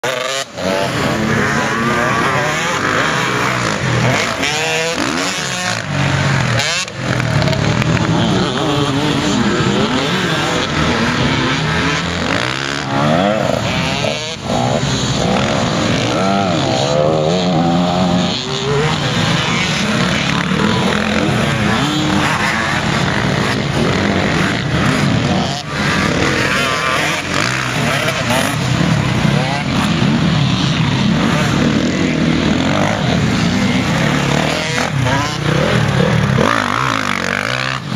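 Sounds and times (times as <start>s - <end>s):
dirt bike engines revving: 0.0s - 37.9s.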